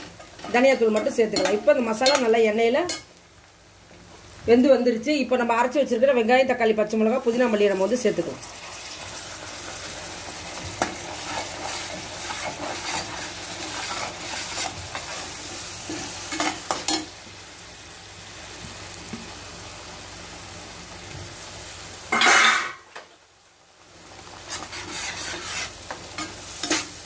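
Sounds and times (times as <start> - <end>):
paste sizzling in hot oil: 7.0 - 22.8, 23.5 - 27.0
metal fork scraping a pan: 10.8 - 15.2, 24.5 - 27.0.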